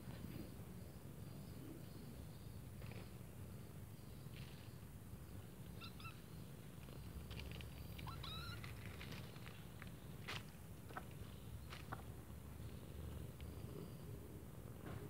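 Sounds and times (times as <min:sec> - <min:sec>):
crunching clicks of chewing: 0:06.8 - 0:12.0.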